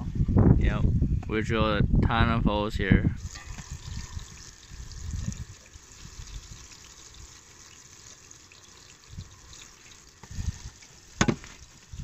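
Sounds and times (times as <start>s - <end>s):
wind on microphone: 0.0s - 6.6s, 10.2s - 10.8s
fish sizzling in a pan: 3.2s - 12.0s.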